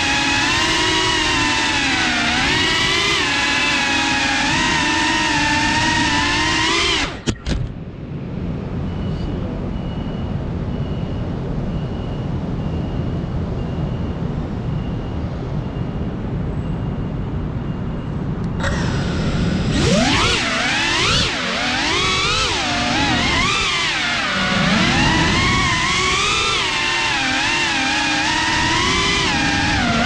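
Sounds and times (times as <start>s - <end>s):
drone motors whining: 0.0s - 7.9s, 18.4s - 30.0s
faint high beep: 8.8s - 18.2s.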